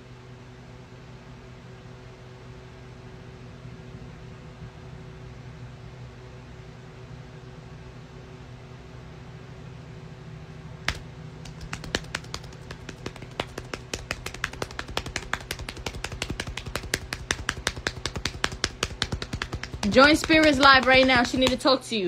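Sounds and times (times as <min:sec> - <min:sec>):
rapid tapping clicks: 0:10.9 - 0:21.7.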